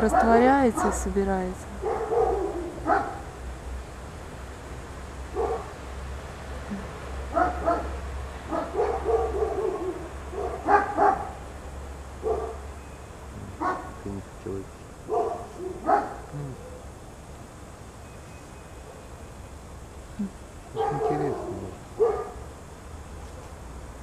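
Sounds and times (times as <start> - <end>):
steady low hum: 0.0 - 24.0
dog yipping and barking: 1.8 - 3.3, 5.4 - 5.7, 7.3 - 11.4, 12.2 - 12.6, 13.6 - 14.0, 15.1 - 16.8, 20.7 - 22.4
dog whining: 20.8 - 22.2.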